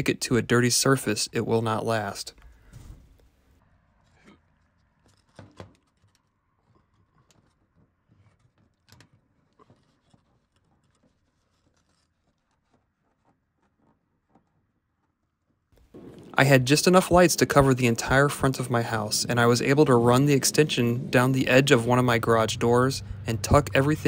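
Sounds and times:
faint scratches and clicks of handling: 0:04.0 - 0:15.2.

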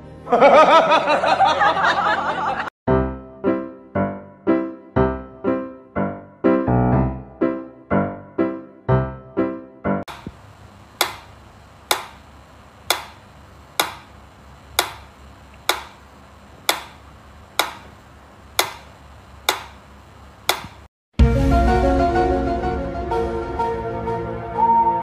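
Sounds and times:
piano music: 0:02.9 - 0:10.0.

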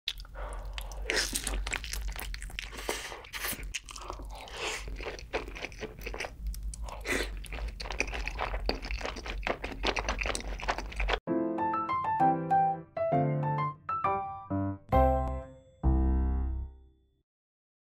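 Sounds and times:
crunching and chewing fried chicken: 0:00.1 - 0:11.2.

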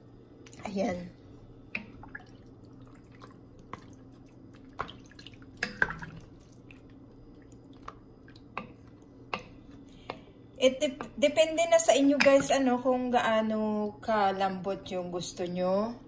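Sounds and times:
faint steady hum: 0:00.0 - 0:16.0
water dripping into pot: 0:01.7 - 0:10.3.

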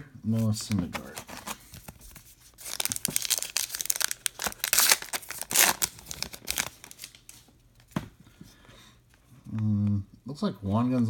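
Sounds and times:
card pack wrapper tearing and crinkling: 0:00.4 - 0:07.5.

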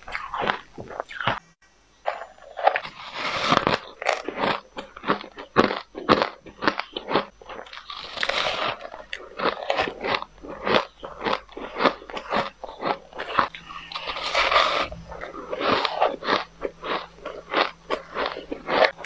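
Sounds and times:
chewing ice crunches: 0:00.0 - 0:01.4, 0:02.1 - 0:19.0.

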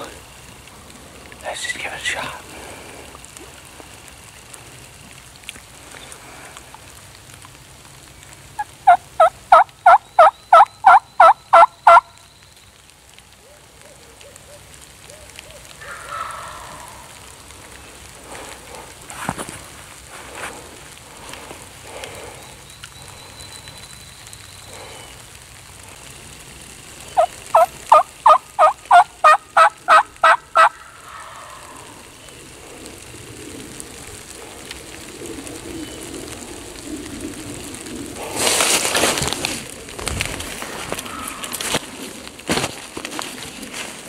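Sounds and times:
turkey yelps: 0:08.6 - 0:12.0, 0:13.4 - 0:17.1, 0:27.2 - 0:32.0.

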